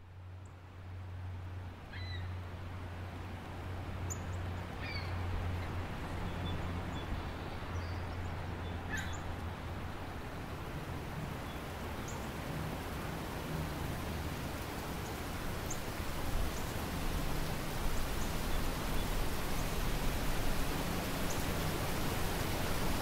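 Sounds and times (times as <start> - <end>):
waterfall rushing: 4.6 - 23.0.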